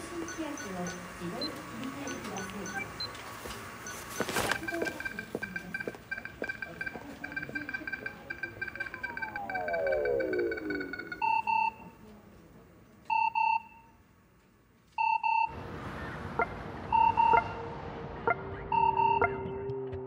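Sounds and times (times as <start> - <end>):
electronic double beeps: 3.8 - 11.8, 18.5 - 19.6
low hum: 4.6 - 12.1, 15.5 - 20.0.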